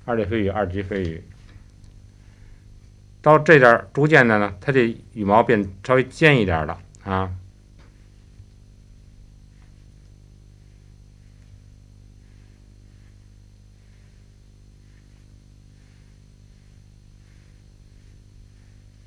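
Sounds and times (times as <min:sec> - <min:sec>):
low electrical hum: 0:00.0 - 0:19.0
strokes swishing across paper: 0:07.8 - 0:19.0.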